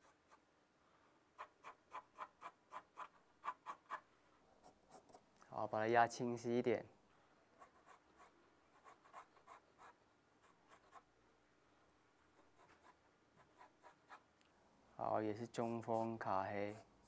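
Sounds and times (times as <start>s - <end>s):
pencil scratching on paper: 0.0s - 0.4s, 7.6s - 11.1s, 12.3s - 14.3s, 15.4s - 17.0s.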